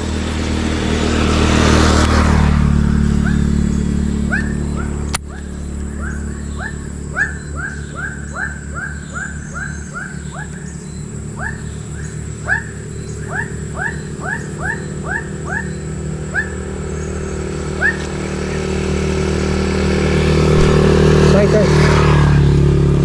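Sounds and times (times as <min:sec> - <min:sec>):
low engine hum: 0:00.0 - 0:23.0
repeated animal calls: 0:03.1 - 0:18.8.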